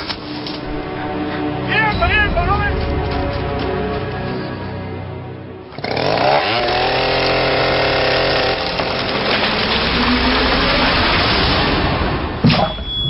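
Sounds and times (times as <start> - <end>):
chainsaw revving: 5.7 - 11.0.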